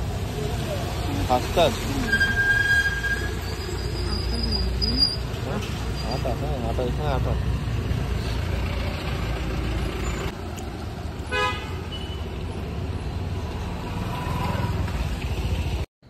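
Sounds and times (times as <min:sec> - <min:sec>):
street traffic: 0:00.0 - 0:15.9
vehicle horn toot: 0:11.3 - 0:12.2.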